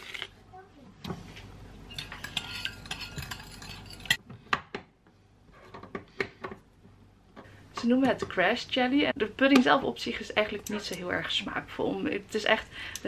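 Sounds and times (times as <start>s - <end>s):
metal spoon scraping glass bowl: 1.9s - 4.2s.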